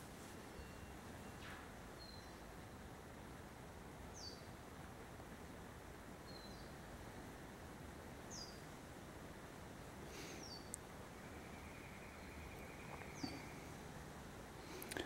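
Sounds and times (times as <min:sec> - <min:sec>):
faint background hiss: 0:00.0 - 0:15.0
faint steady high tone: 0:00.3 - 0:02.4, 0:10.6 - 0:14.1
high falling bird chirps: 0:10.2 - 0:13.9.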